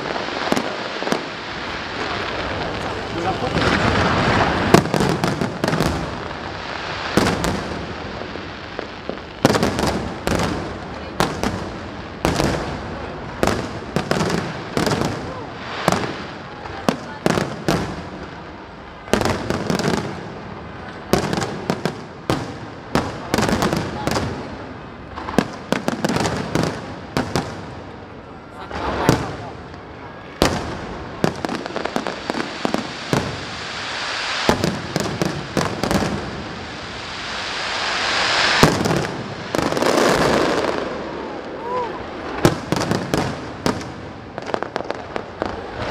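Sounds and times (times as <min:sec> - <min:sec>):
fireworks bangs: 0:00.0 - 0:45.9.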